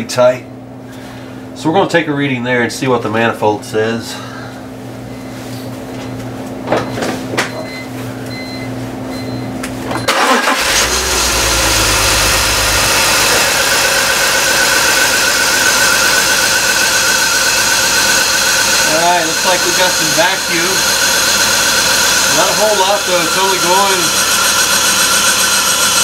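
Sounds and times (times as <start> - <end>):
car engine cranking and idling: 10.0 - 26.0.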